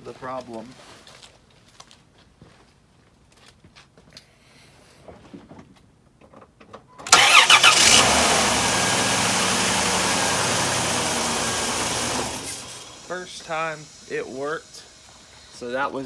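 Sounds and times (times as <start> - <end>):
starter cranking: 7.1 - 14.2
car engine idling: 7.1 - 15.5.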